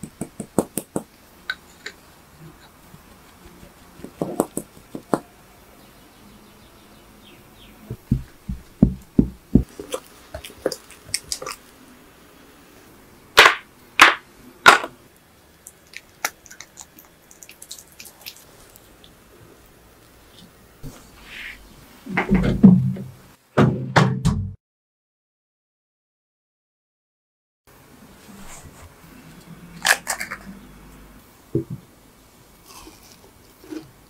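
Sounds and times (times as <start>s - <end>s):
soft low thuds: 7.9s - 9.8s.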